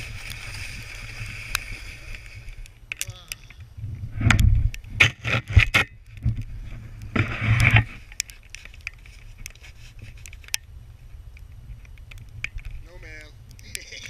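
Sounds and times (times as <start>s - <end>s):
faint clicks: 1.4s - 3.7s, 5.8s - 10.7s, 11.3s - 14.0s
harsh scrape: 6.7s - 8.1s.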